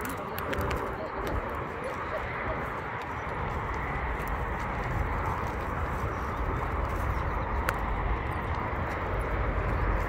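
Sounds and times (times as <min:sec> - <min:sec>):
wind on microphone: 0:00.0 - 0:10.0.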